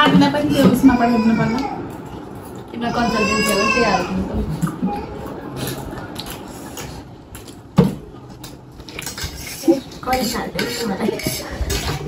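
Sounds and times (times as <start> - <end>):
cutlery clinking on plates: 5.6 - 12.0.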